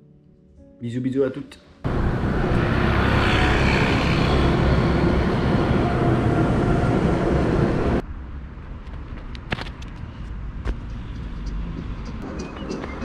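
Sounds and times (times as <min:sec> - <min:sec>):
outdoor ambience: 0:01.8 - 0:13.0
road noise: 0:01.8 - 0:13.0
tram passing: 0:01.9 - 0:08.9, 0:10.0 - 0:13.0
footsteps on concrete: 0:08.8 - 0:13.0.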